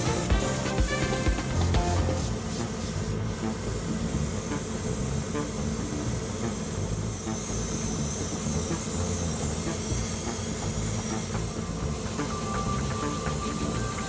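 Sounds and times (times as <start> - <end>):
background music: 0.0 - 6.6, 8.6 - 14.0
airbrush hissing: 1.9 - 4.8, 6.6 - 12.6.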